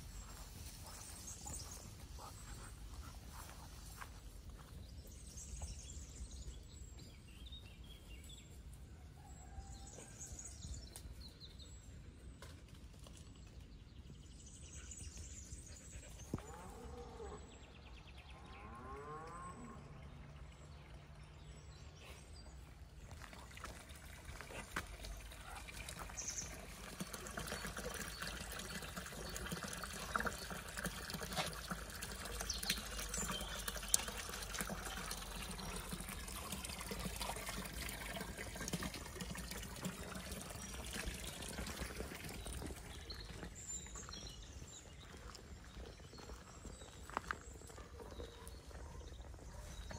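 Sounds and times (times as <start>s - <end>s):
running water splashing: 23.1s - 43.6s.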